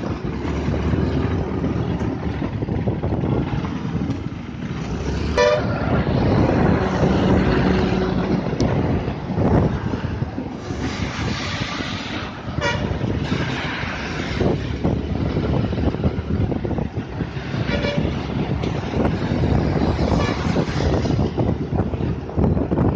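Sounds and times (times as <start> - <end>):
traffic on wet road: 0.0 - 22.9
wind rumbling on microphone: 0.0 - 22.9
short vehicle horn toots: 5.4 - 5.7.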